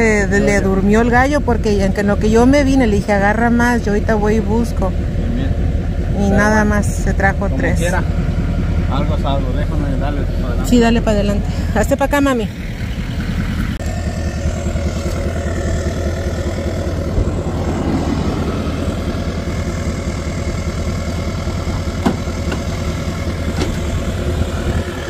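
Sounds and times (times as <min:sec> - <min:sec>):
pickup engine idling: 0:00.0 - 0:25.0.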